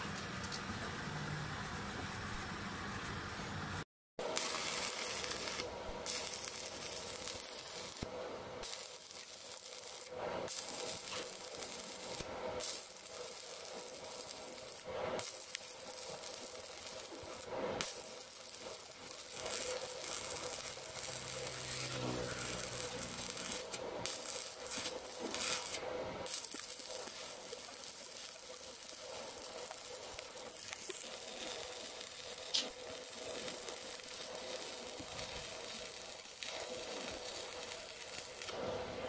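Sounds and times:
welding arc crackling: 4.2 - 38.8.

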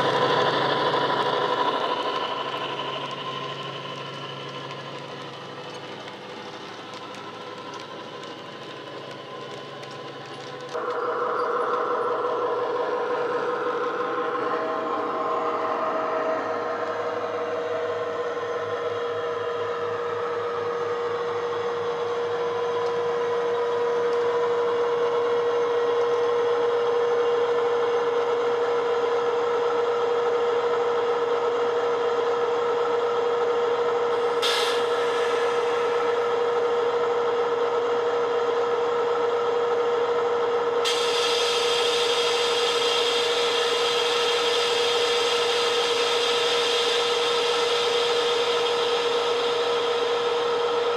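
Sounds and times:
air hiss: 34.3 - 36.5, 40.8 - 50.5.

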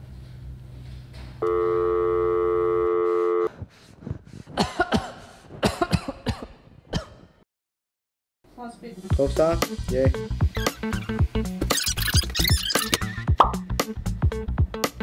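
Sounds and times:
man coughing hard: 4.5 - 7.4.

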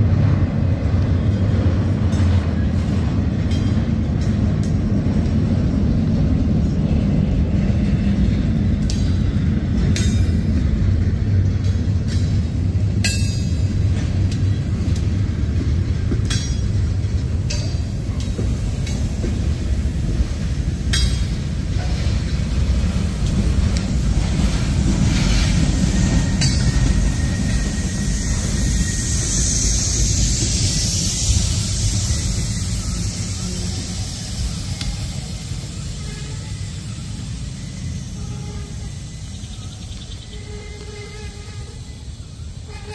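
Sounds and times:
steel wheels rumbling on rail: 0.0 - 42.9
freight cars clanking: 1.1 - 42.9
hiss: 16.2 - 42.9.

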